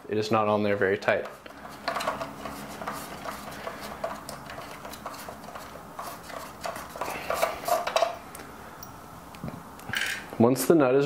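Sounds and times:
metal nut scraping and clicking: 1.0 - 8.2.

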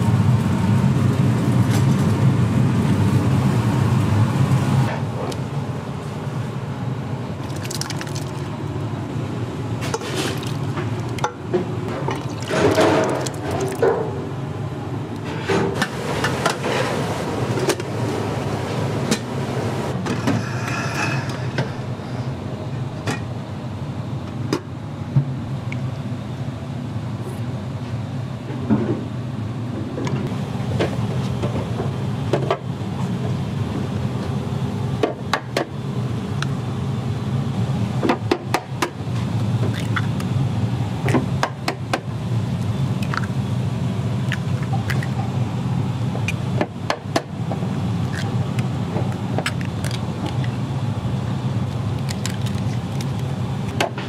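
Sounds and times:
low kitchen hum: 0.0 - 54.0
eggs cracking: 7.4 - 8.6, 10.3 - 11.3, 12.1 - 13.8, 39.7 - 40.3, 43.0 - 43.4, 44.2 - 45.2, 47.7 - 50.6, 51.7 - 53.9.

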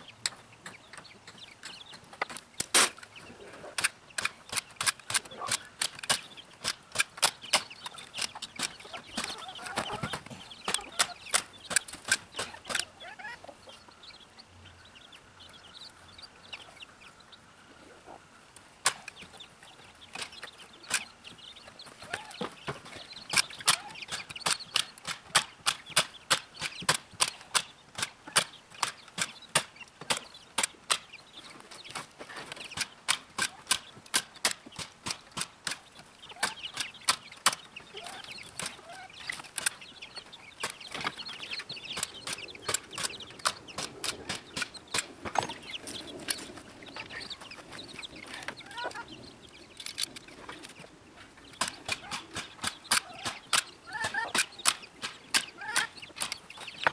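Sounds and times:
chickens clucking and peeping: 0.0 - 56.9
sharp clicks: 3.8 - 12.9, 22.6 - 50.9, 51.5 - 56.9.

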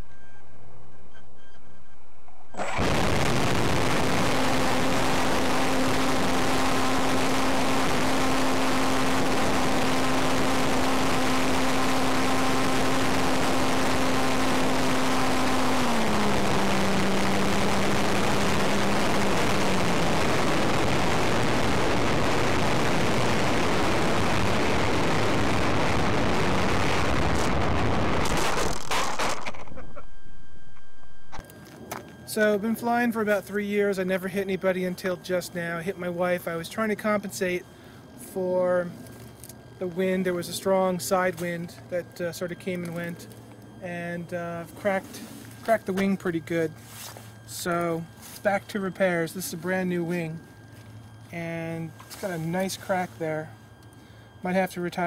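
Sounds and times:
model airplane motor humming: 2.3 - 29.8.

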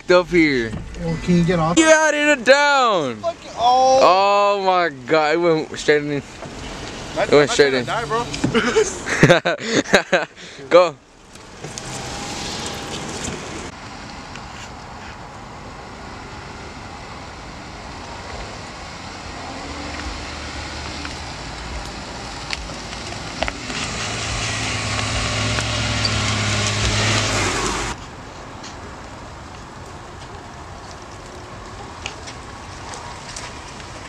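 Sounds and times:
tyres on muddy terrain: 0.0 - 34.0
car engine running: 11.0 - 28.0.

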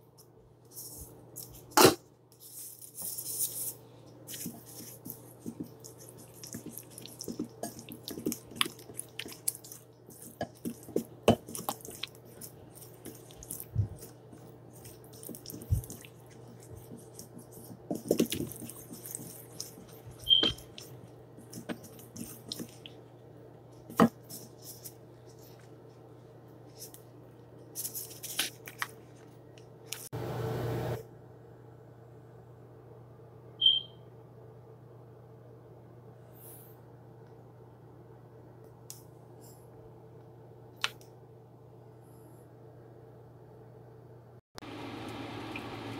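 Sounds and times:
soft wet squishing: 4.0 - 29.3.

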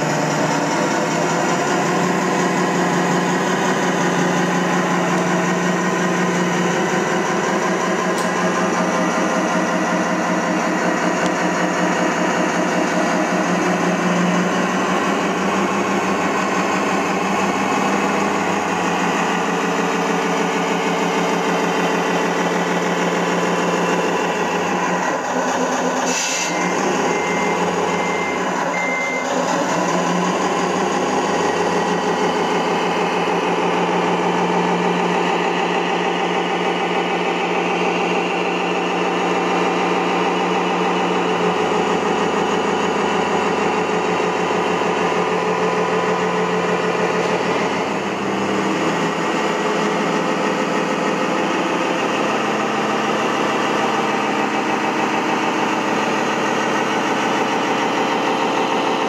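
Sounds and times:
simulated diesel truck engine: 0.0 - 59.0
high beeps: 26.4 - 29.4.

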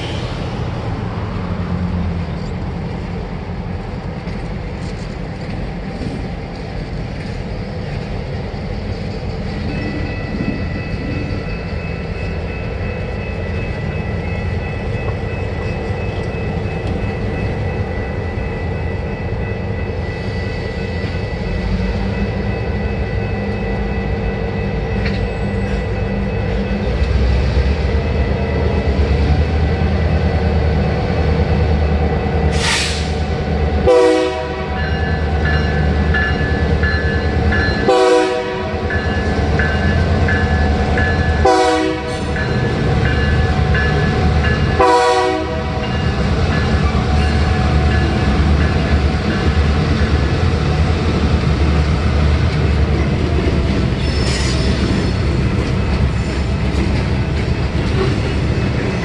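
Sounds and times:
crossing bell ringing: 9.0 - 32.5, 33.2 - 59.0
train horn blasts: 33.8 - 35.0, 37.8 - 39.0, 41.4 - 42.4, 44.7 - 45.9
freight cars rumbling and clattering: 45.5 - 59.0.

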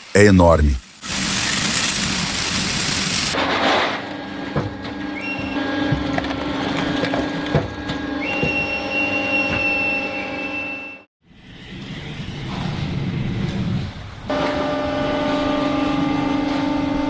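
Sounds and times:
loud rushing hiss: 0.0 - 3.4
machinery hum with whine: 0.0 - 17.0.

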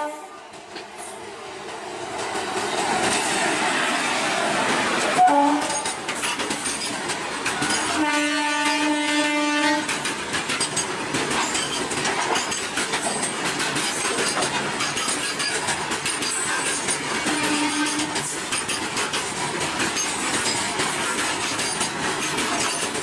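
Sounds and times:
train horn: 0.0 - 0.4, 5.1 - 6.0, 7.8 - 9.9, 17.2 - 18.2
train wheels rushing on rails: 0.0 - 23.0.

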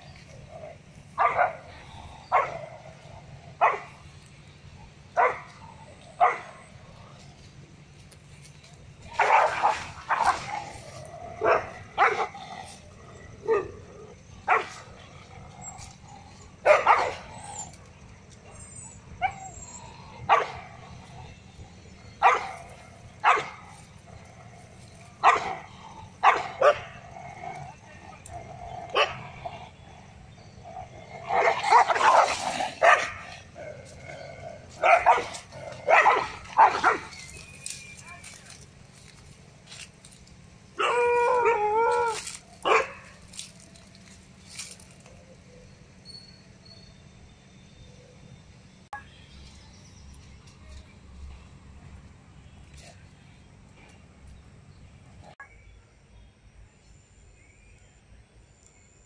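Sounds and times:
dogs barking: 0.0 - 7.6, 8.6 - 38.6, 39.7 - 45.6
dog barking: 1.2 - 1.6, 2.3 - 2.6, 3.6 - 4.0, 5.2 - 5.6, 6.2 - 6.6, 9.1 - 10.6, 11.4 - 12.4, 14.5 - 14.8, 16.6 - 17.3, 20.3 - 20.6, 22.2 - 23.7, 25.2 - 25.6, 26.2 - 27.0, 28.9 - 29.3, 31.3 - 33.3, 34.8 - 37.2, 42.6 - 43.1.

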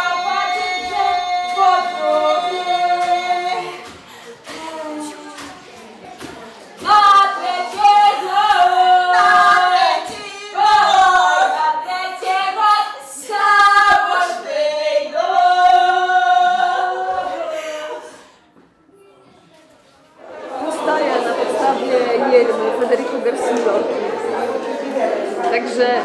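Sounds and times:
group singing unaccompanied: 0.0 - 18.2.

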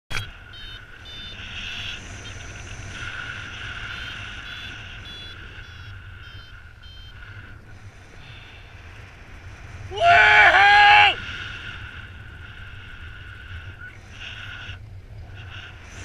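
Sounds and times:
variometer short high beeps: 0.1 - 2.7, 3.6 - 7.4.

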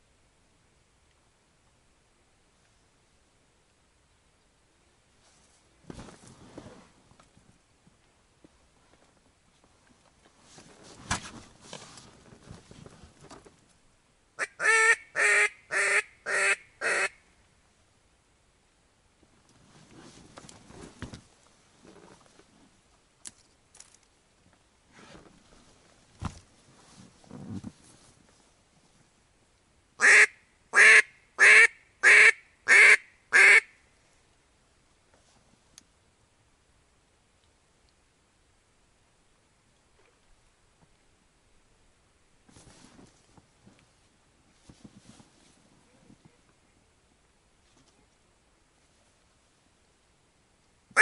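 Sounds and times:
soft rustling and shuffling: 5.1 - 13.9, 19.2 - 29.3, 34.8 - 35.8, 42.4 - 46.9, 47.5 - 49.8
duck quacking: 14.4 - 17.2, 30.0 - 33.7.

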